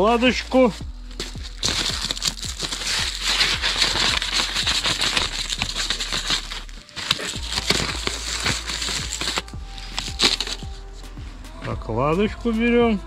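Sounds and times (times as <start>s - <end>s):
gasket crinkling and clicking: 1.2s - 10.6s.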